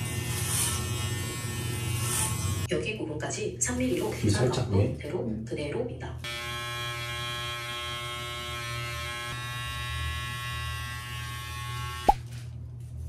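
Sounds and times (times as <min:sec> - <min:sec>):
electric hair clippers buzzing: 0:00.0 - 0:02.7, 0:06.2 - 0:12.2.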